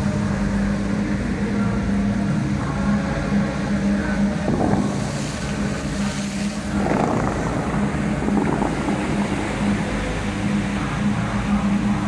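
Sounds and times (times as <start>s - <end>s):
fountain water jets rushing: 0.0s - 12.0s
steady low hum: 0.0s - 12.0s
wind on microphone: 3.4s - 12.0s.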